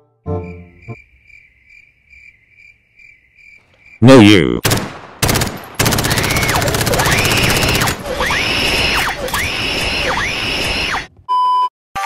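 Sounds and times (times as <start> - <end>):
harsh wailing siren tone: 6.4 - 11.1.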